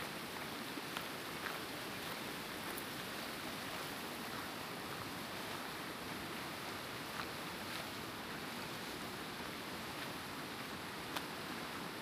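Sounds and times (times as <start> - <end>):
fast river rushing: 0.0 - 12.0
faint footsteps on gravel: 0.3 - 12.0.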